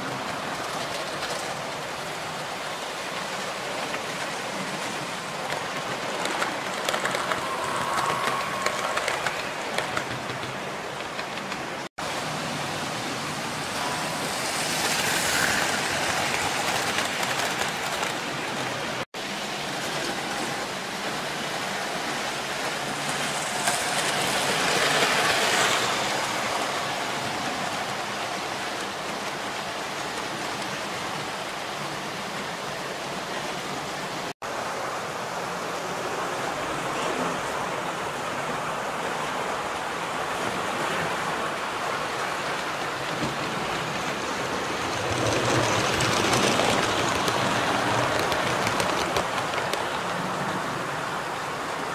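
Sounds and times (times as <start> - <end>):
model trains rattling on track: 3.1 - 11.9, 13.8 - 19.0, 19.6 - 32.0, 42.0 - 50.7.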